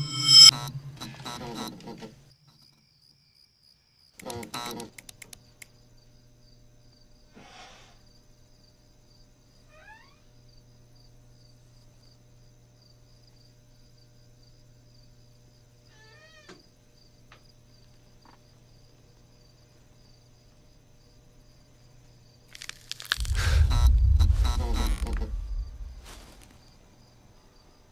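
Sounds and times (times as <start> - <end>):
crickets chirping: 0.0 - 0.5, 19.4 - 27.7
low hum: 0.0 - 0.5, 22.7 - 26.6
soft rush: 0.0 - 0.5, 22.9 - 26.6.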